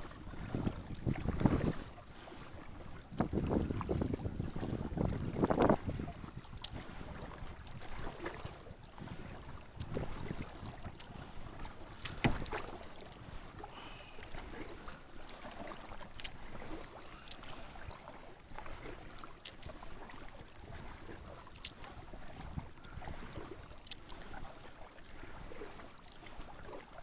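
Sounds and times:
kayak paddle splashing: 0.0 - 27.0
wind on microphone: 0.1 - 2.0, 2.9 - 11.6, 22.3 - 23.6.

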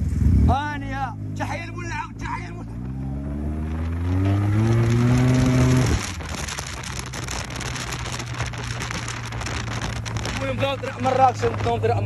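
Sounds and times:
wind and road noise: 0.0 - 12.0
scooter engine accelerating: 2.8 - 6.2.

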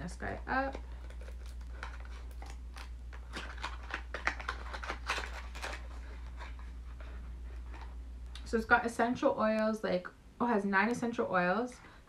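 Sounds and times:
steady low hum: 0.0 - 12.0
packaging clicks taps and rustles: 0.5 - 6.6.

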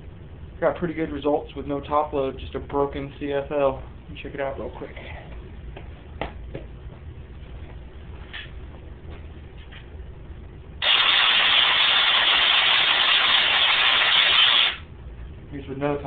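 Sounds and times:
electrical discharge hiss: 10.8 - 14.8.

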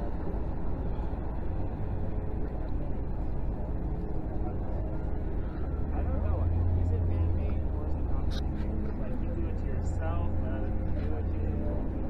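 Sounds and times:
low outdoor rumble: 0.0 - 12.0.

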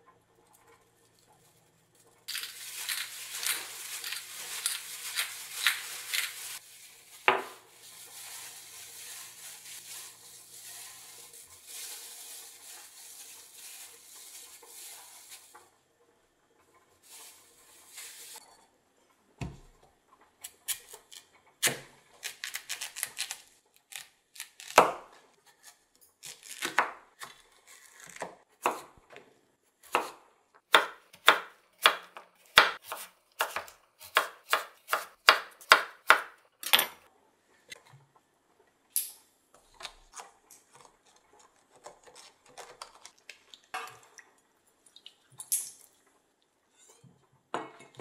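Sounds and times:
knife chopping on wooden board: 29.9 - 36.9.

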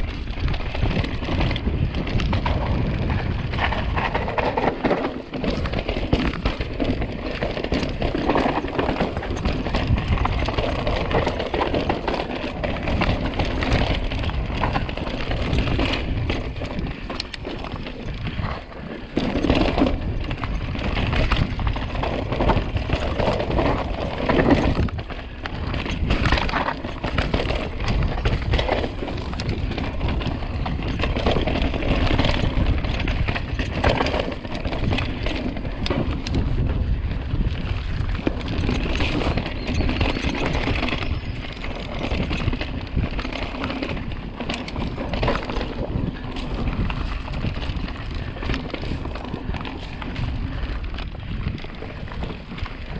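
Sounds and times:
bike knocks and rattles: 0.0 - 52.9
bike tyres crunching over rocks: 0.0 - 52.9
wind on microphone: 0.0 - 52.9.

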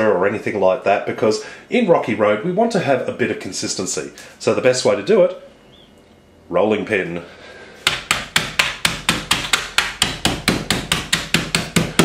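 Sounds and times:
rolling pin crushing biscuits: 7.8 - 12.0.

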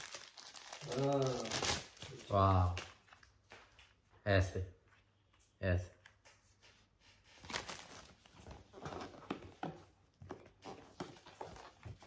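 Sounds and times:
packaging rustling and crinkling: 0.0 - 3.8, 7.4 - 12.0.

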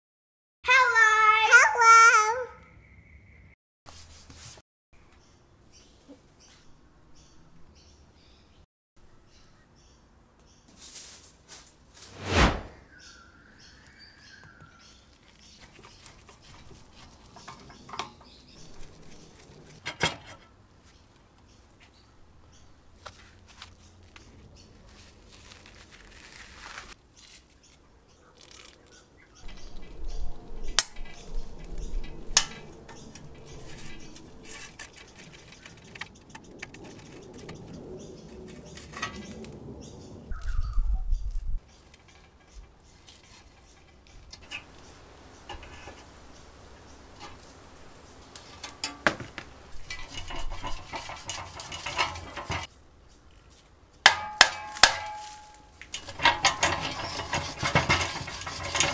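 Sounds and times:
metal scraping and rubbing: 12.0 - 12.9, 29.4 - 37.8, 48.4 - 52.8, 54.9 - 58.9.

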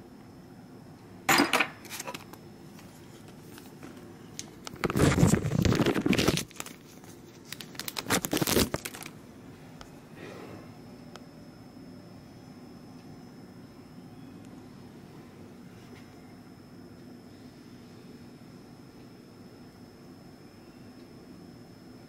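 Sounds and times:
plastic bags crinkling: 2.8 - 9.2.

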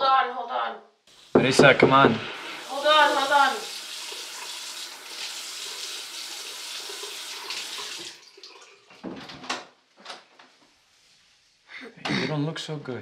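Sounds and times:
sink tap running: 1.1 - 8.8
short knocks and thuds: 1.4 - 2.3.

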